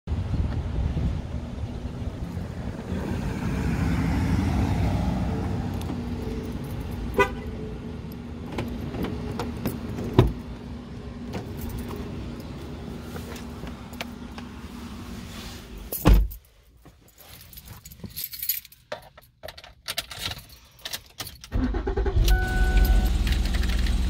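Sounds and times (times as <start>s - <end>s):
car door opening thump: 16.0s - 16.3s.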